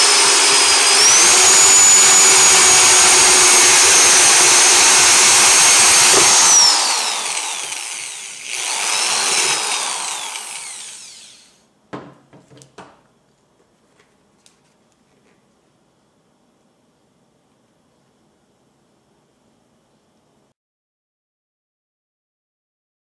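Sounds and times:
drill motor winding down: 0.0s - 11.6s
power drill drilling plastic: 0.0s - 11.6s.

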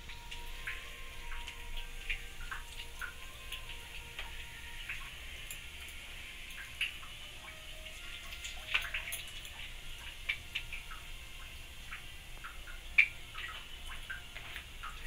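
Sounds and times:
spices sizzling in hot oil: 0.0s - 15.0s.

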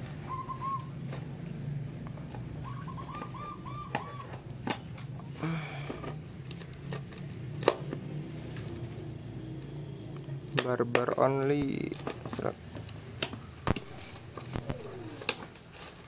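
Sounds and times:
bird chirping: 2.5s - 4.7s, 13.6s - 15.5s.

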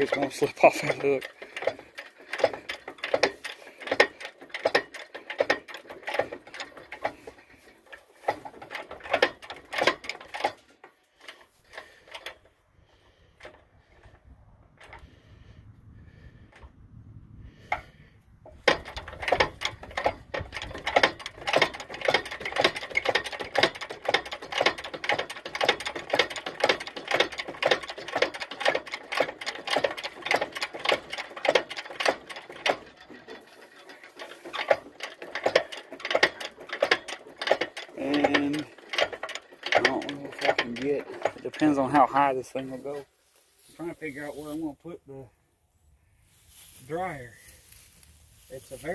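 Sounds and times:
crane lifting mechanism clicking: 0.0s - 12.5s, 17.6s - 42.0s.

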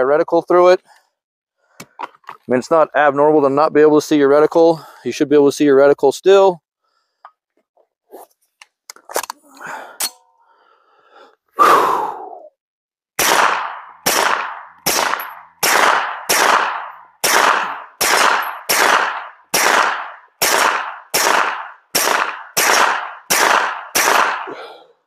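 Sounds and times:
pistol shots: 13.2s - 24.6s.

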